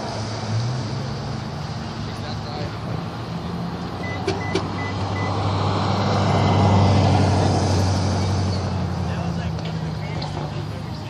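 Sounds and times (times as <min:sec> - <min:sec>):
vehicle rushing by: 0:00.0 - 0:11.0
short high beeps: 0:04.0 - 0:05.4.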